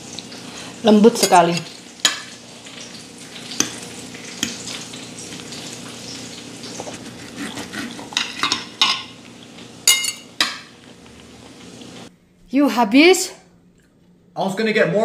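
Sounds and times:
cutlery scraping on a plate: 0:06.8 - 0:09.1.

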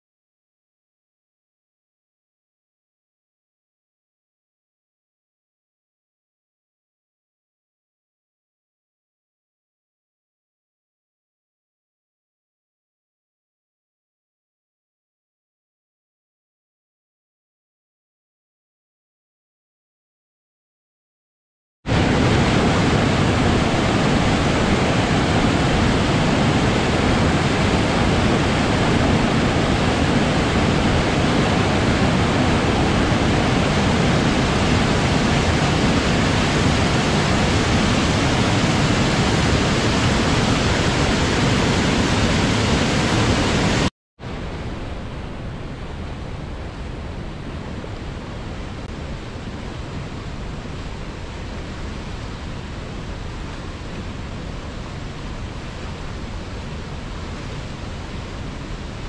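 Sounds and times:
river running over rapids: 0:21.9 - 0:59.0
waterfall rushing over boulders: 0:21.9 - 0:59.0.

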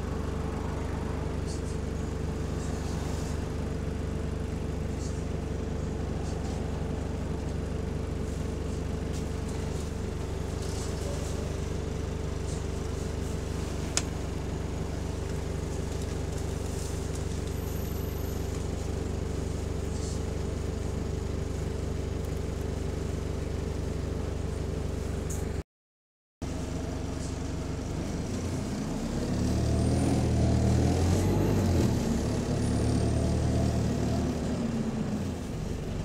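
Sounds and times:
bus engine running: 0:00.0 - 0:25.6, 0:26.4 - 0:36.0
cooling fan whine: 0:09.2 - 0:21.3.

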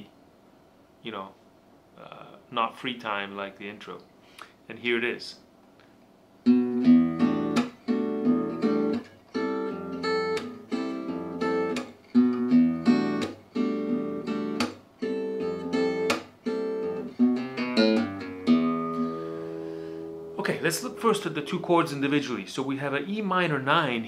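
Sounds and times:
acoustic guitar strumming chords: 0:06.4 - 0:22.6.

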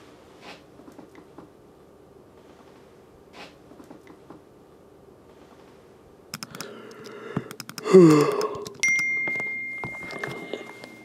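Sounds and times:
high ringing ding: 0:08.8 - 0:11.0.

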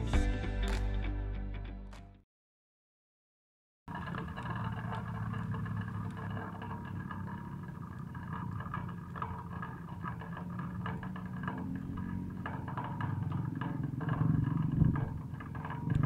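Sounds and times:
wood fire crackling: 0:03.9 - 0:16.0.

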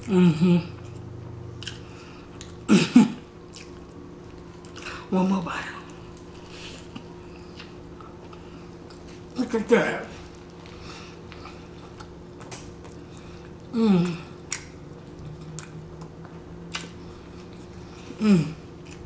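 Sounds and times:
person humming: 0:00.0 - 0:00.8, 0:13.7 - 0:16.4, 0:18.1 - 0:18.7
chewing food: 0:00.7 - 0:02.7, 0:03.5 - 0:05.1, 0:10.2 - 0:19.0
wet mouth clicks: 0:14.0 - 0:16.1.

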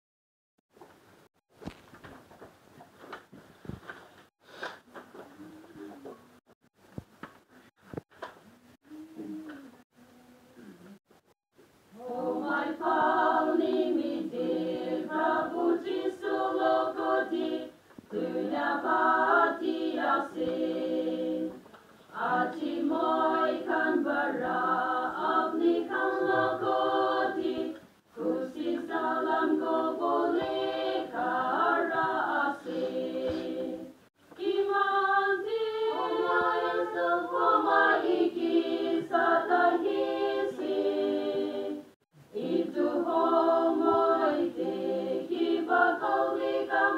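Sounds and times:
women singing a hymn: 0:11.9 - 0:46.9.

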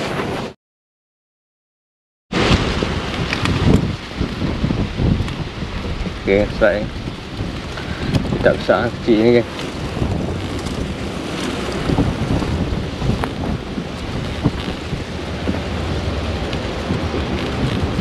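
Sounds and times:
wind buffeting microphone: 0:02.4 - 0:18.0
rod and reel clicks: 0:09.1 - 0:12.0, 0:13.2 - 0:15.6, 0:17.3 - 0:18.0.

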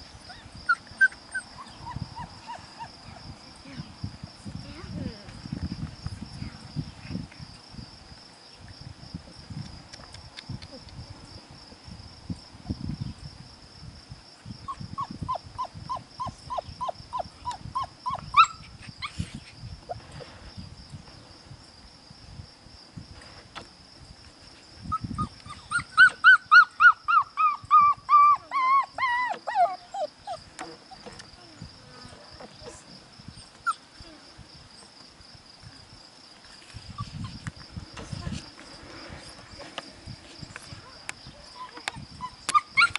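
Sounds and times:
puppies yelping: 0:00.3 - 0:02.9, 0:14.7 - 0:18.6, 0:25.2 - 0:31.0, 0:41.6 - 0:42.9.

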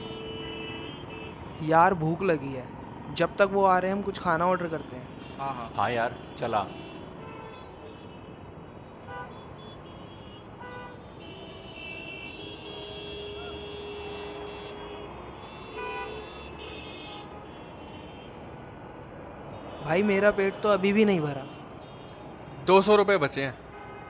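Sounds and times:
car horn toots: 0:00.0 - 0:01.4, 0:09.1 - 0:18.4, 0:19.5 - 0:23.0, 0:23.6 - 0:24.0
street traffic noise: 0:00.0 - 0:24.0.

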